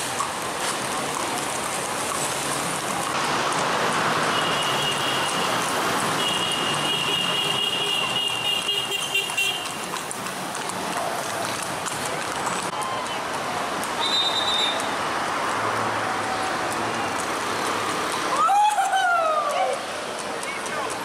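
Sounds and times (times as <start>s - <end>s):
outdoor street noise: 0.0s - 21.0s
high whistle-like tone: 14.0s - 14.8s.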